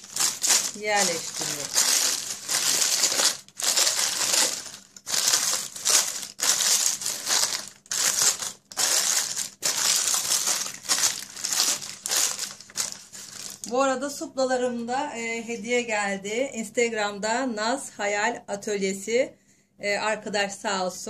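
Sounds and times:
parchment paper crinkling: 0.0s - 13.7s.

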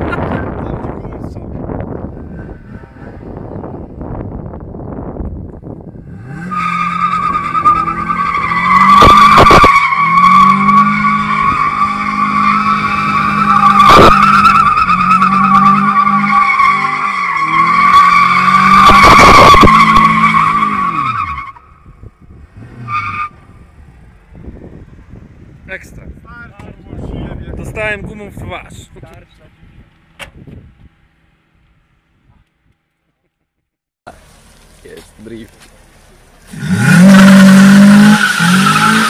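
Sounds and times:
car engine revving: 5.9s - 25.6s, 35.7s - 39.0s.

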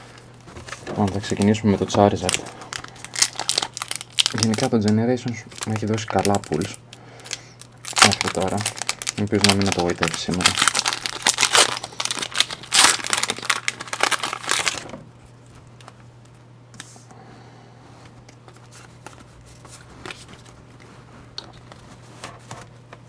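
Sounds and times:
foil wrapper tearing and crinkling: 1.0s - 15.0s.

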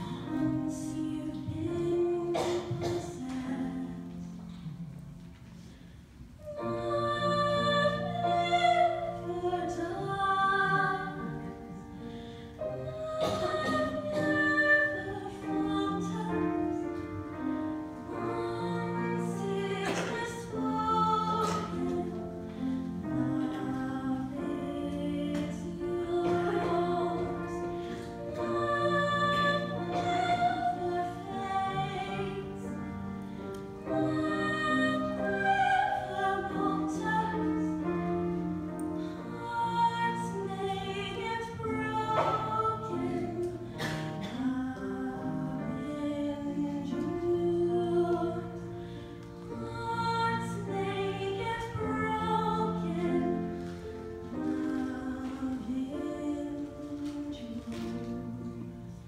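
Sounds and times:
woman singing with vibrato: 6.4s - 11.6s, 12.7s - 16.9s, 17.9s - 32.6s, 33.8s - 38.2s, 39.2s - 43.6s.

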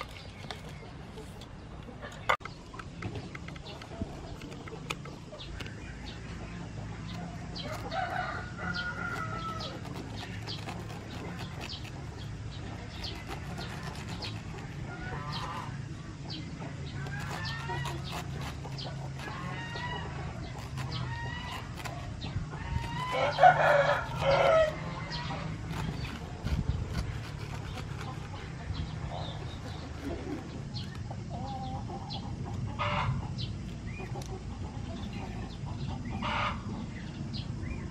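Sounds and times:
chickens calling: 0.0s - 37.9s
rooster crowing: 7.6s - 9.9s, 22.7s - 25.5s.

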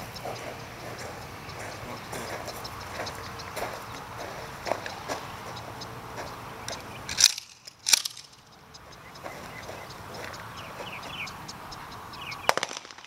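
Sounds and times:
sharp loud cracks: 7.1s - 8.4s, 12.4s - 13.0s.

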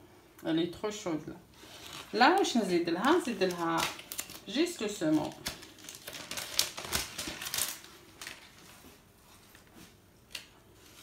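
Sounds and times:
crinkling rustles: 1.5s - 11.0s.

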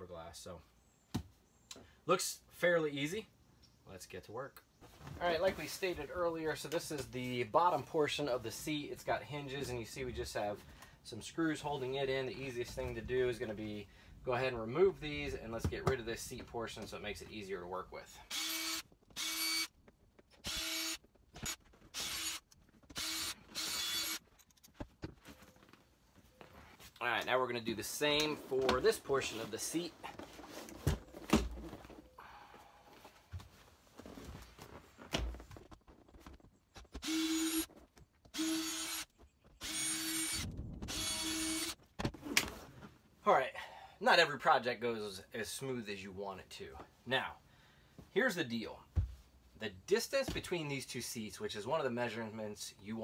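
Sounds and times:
cordless drill running: 18.3s - 19.7s, 20.4s - 24.2s, 37.0s - 37.7s, 38.3s - 41.8s.

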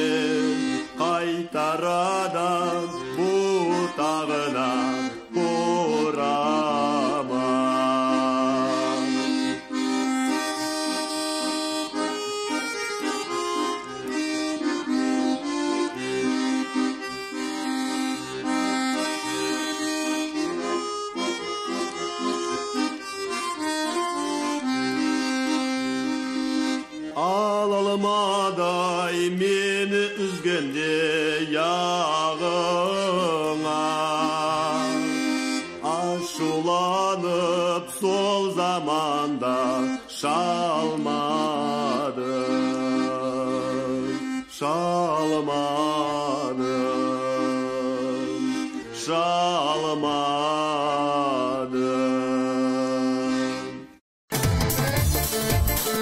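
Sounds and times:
person singing with vibrato: 0.0s - 11.2s, 25.6s - 54.0s
accordion: 0.0s - 56.0s.

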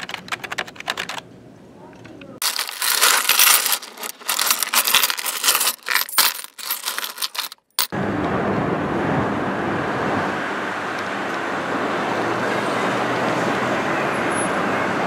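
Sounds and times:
traffic rumble: 0.0s - 15.0s
metallic clinking and jingling: 2.4s - 7.9s.

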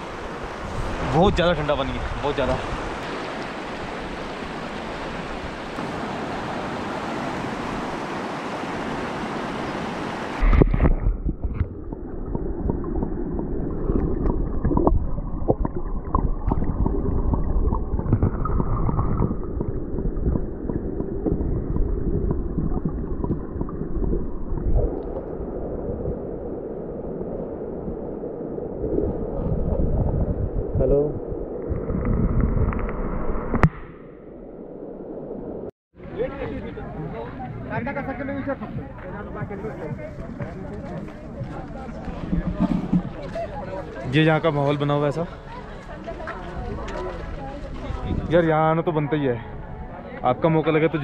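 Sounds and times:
river water rushing: 0.0s - 10.6s
low rumble with knocks: 10.4s - 25.2s, 38.8s - 43.4s.

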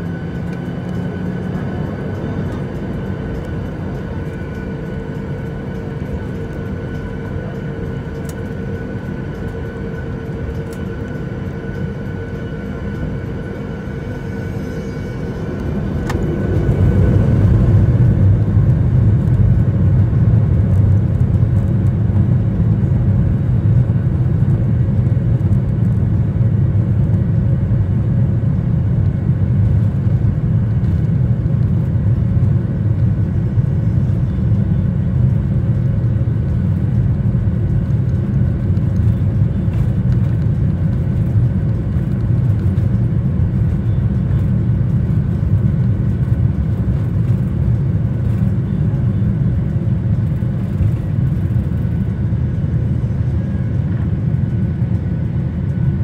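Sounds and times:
jet engines rumbling: 0.0s - 56.0s.

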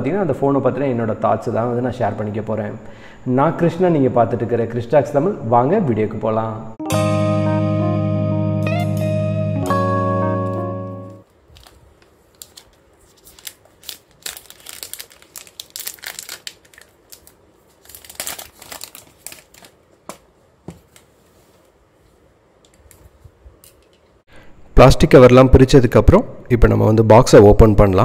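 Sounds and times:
plastic shrink-wrap crinkling: 11.2s - 20.0s.

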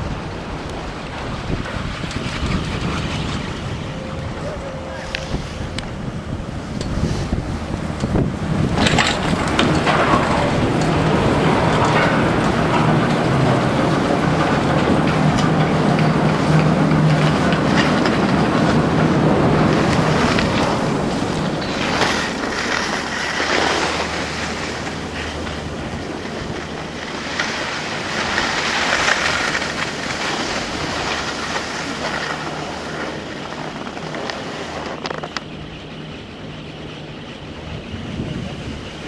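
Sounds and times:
lift machinery hum: 0.0s - 39.0s
haul rope clicking: 6.7s - 35.6s.

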